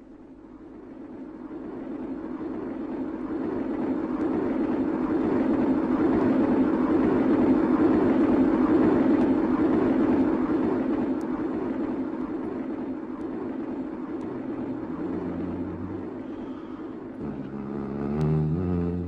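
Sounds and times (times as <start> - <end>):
train rumbling: 0.0 - 19.0.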